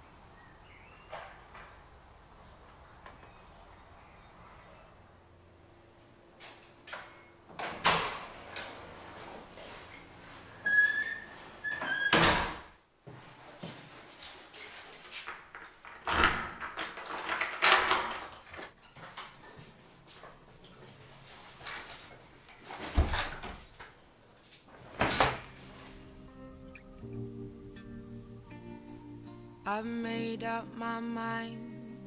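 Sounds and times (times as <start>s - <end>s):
short high squeak: 10.6s - 12.2s
doors thudding closed: 11.8s - 12.7s, 24.9s - 25.6s
door handles and latches clicking: 14.1s - 19.3s.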